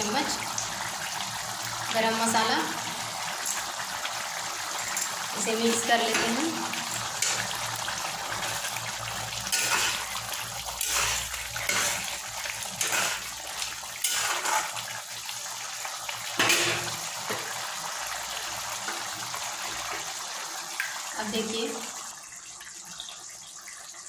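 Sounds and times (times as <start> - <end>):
spatula scraping a pan: 9.5 - 13.4, 14.0 - 14.9.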